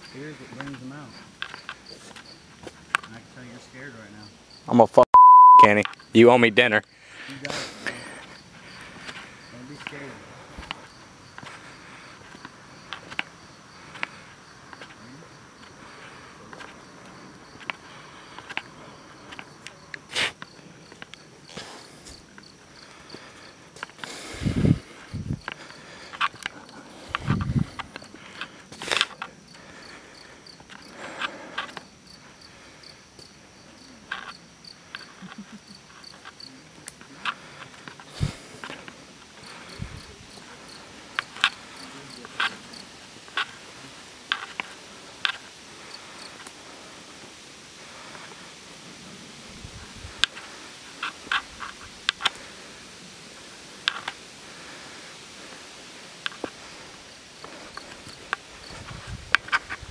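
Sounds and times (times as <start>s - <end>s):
night insects chirping: 0.0s - 5.0s, 5.7s - 59.9s
footsteps and scuffs: 0.6s - 3.1s
rustle with low thumps: 20.6s - 29.8s, 36.5s - 59.9s
sharp crunches and crackles: 56.3s - 59.9s.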